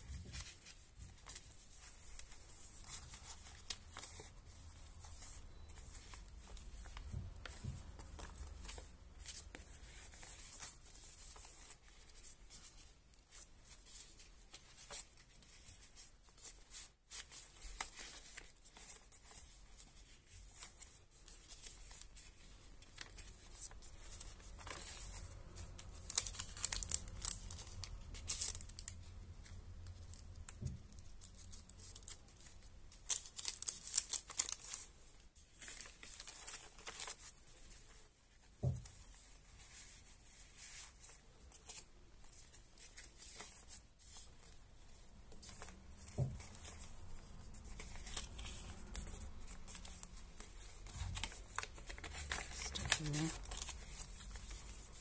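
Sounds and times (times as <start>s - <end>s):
stiff paper rustling and crinkling: 0.0s - 55.0s.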